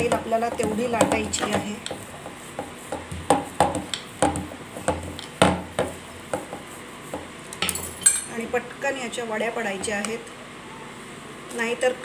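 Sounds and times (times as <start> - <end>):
rolling pin thudding on surface: 0.0 - 7.4.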